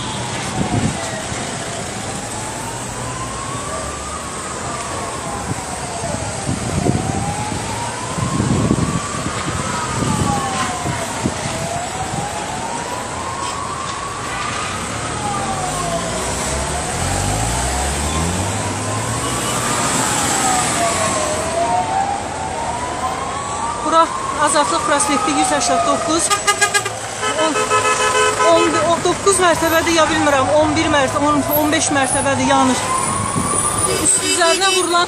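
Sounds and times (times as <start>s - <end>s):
emergency siren wailing: 0.0s - 35.0s
street traffic: 0.0s - 35.0s
vehicle engine revving: 15.0s - 21.6s.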